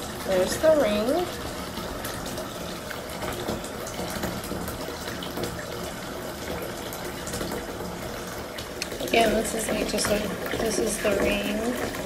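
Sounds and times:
water in bathtub: 0:00.0 - 0:12.0.

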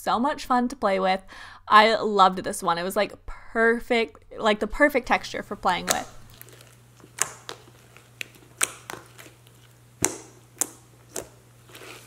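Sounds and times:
slime clicking and popping: 0:05.8 - 0:11.4.

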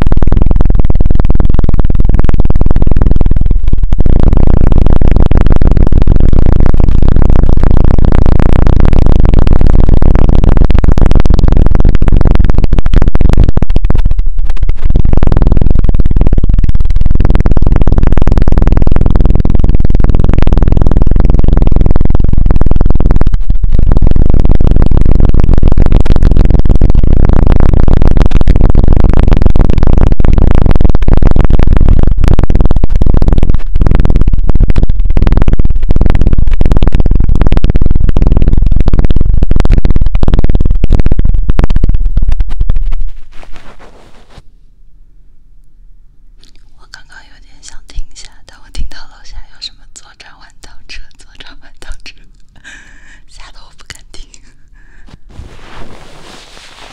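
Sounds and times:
fingertips rubbing on microphone: 0:43.0 - 0:44.4, 0:55.3 - 0:56.9.

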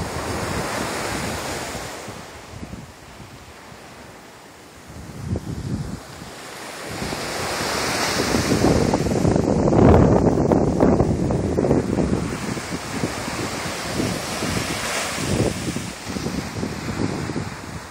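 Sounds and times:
wind buffeting microphone: 0:00.0 - 0:17.9
surf breaking on rocks: 0:06.8 - 0:17.9.

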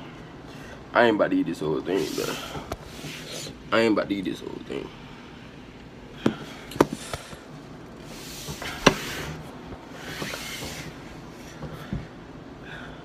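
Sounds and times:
hand rubbing and rustling: 0:07.9 - 0:11.9.

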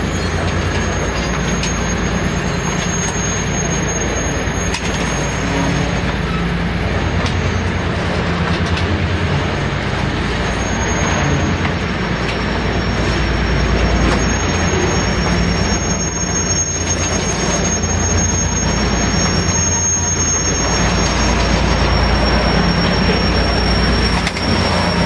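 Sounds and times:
diesel locomotives droning: 0:00.0 - 0:25.0
high wheel squeal: 0:00.0 - 0:25.0.

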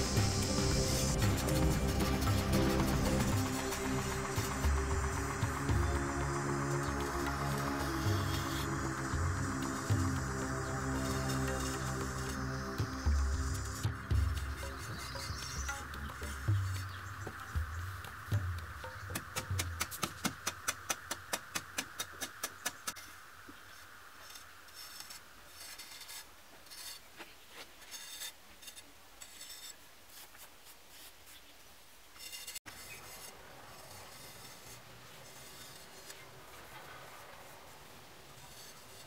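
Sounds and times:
blade scraping mud plaster: 0:24.2 - 0:31.4, 0:32.2 - 0:39.0.

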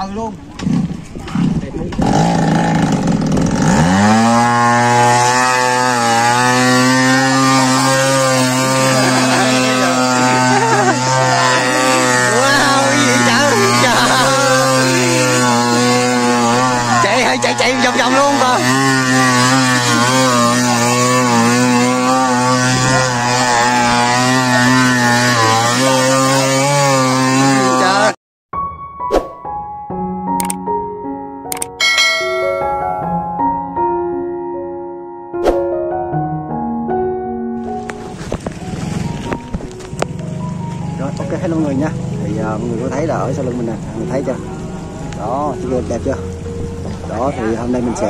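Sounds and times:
small boat engine revving: 0:00.6 - 0:28.2, 0:37.7 - 0:48.0.

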